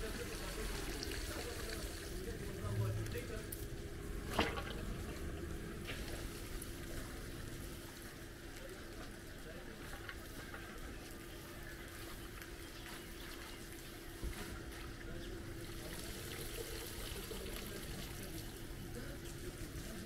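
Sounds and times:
water trickling: 0:00.0 - 0:03.3, 0:04.2 - 0:07.0
steady hum: 0:00.0 - 0:08.8.

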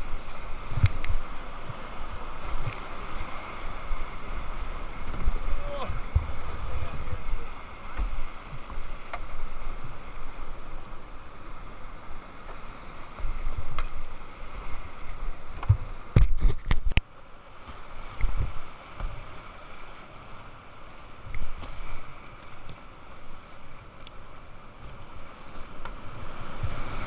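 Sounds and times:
whitewater river rushing: 0:00.0 - 0:15.6.

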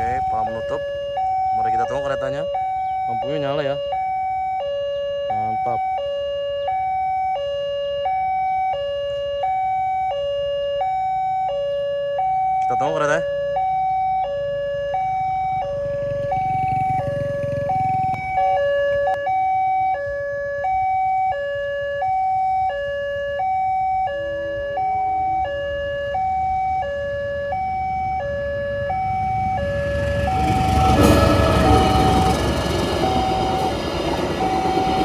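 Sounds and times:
passenger train rumbling on rails: 0:28.0 - 0:35.0.

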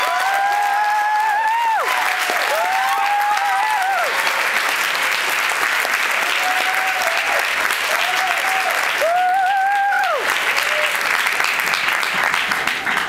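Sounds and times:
high-pitched cheers: 0:00.0 - 0:04.5, 0:06.1 - 0:11.3
audience clapping: 0:00.0 - 0:13.0.

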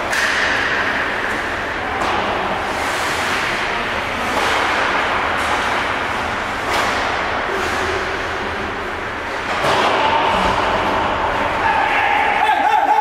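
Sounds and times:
sticks striking puck: 0:00.0 - 0:01.4, 0:02.0 - 0:07.3.

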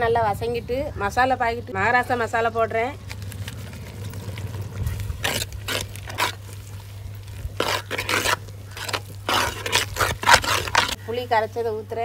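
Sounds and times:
ladle scraping in a pot: 0:04.9 - 0:11.0.

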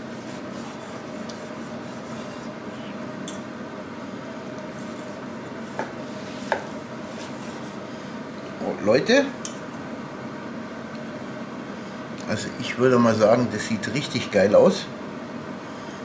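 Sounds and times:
knife sawing through crusty roast: 0:00.0 - 0:02.5
steady hum: 0:00.0 - 0:16.0.

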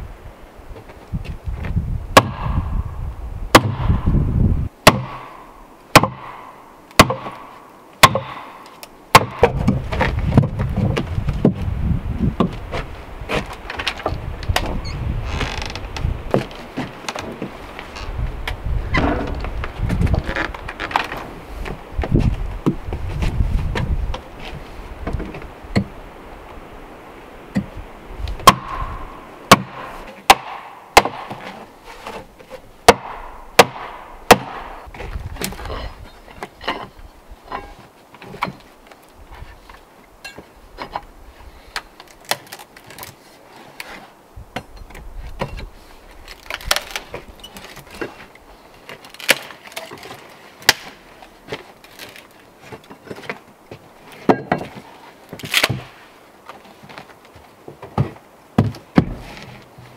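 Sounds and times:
log splitting cracks: 0:02.2 - 0:02.8, 0:03.5 - 0:04.2, 0:04.8 - 0:11.7, 0:12.4 - 0:24.4, 0:27.6 - 0:39.9, 0:40.8 - 0:44.0, 0:44.6 - 0:54.3, 0:55.2 - 0:59.8
wooden mallet striking froe: 0:04.8 - 0:07.4, 0:28.4 - 0:31.5, 0:32.8 - 0:34.7.

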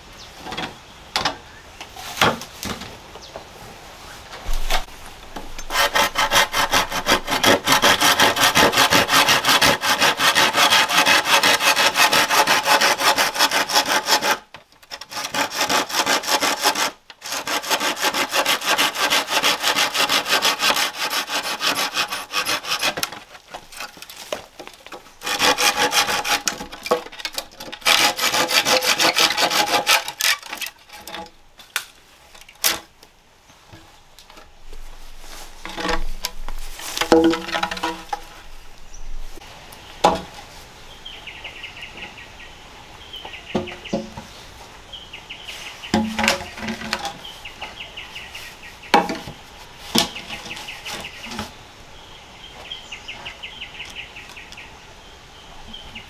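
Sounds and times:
saw cutting through wood: 0:05.6 - 0:24.1, 0:25.2 - 0:31.2.

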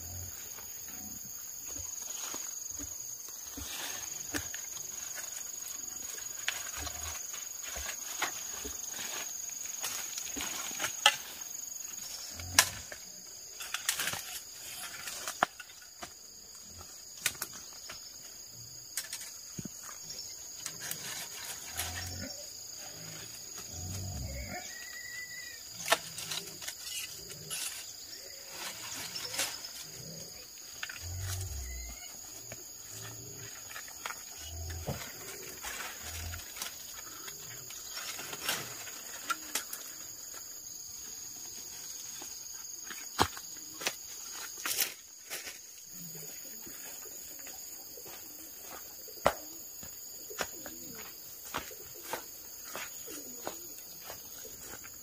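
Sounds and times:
high insect drone: 0:00.0 - 0:55.0
leaves and vines rustling: 0:00.0 - 0:55.0
stems clicking and snapping: 0:17.2 - 0:17.6.

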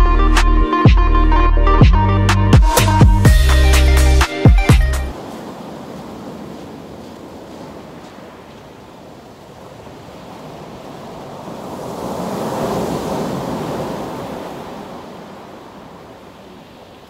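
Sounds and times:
waves breaking on shore: 0:05.1 - 0:17.0.

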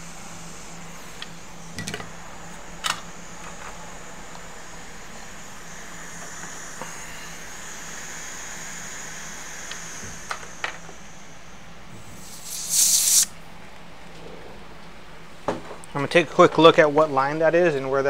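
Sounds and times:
faint steady hiss: 0:00.0 - 0:14.1
compressed air blast: 0:03.7 - 0:13.4.

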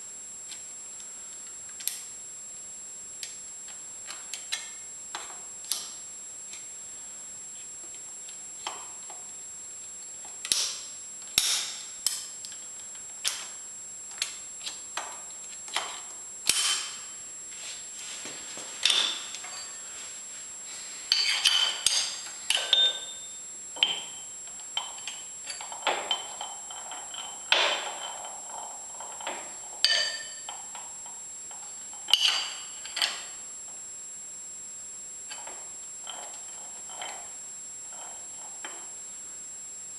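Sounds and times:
wrenches clinking on metal: 0:21.1 - 0:23.2, 0:32.0 - 0:33.2.

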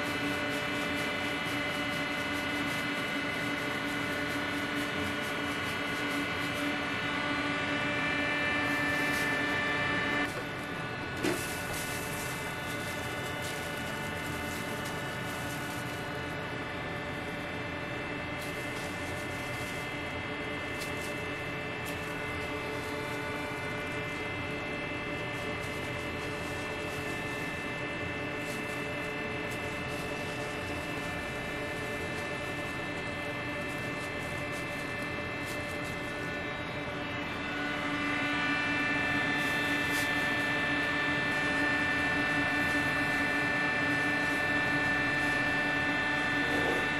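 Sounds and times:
kitchen machinery humming: 0:00.0 - 0:46.9.

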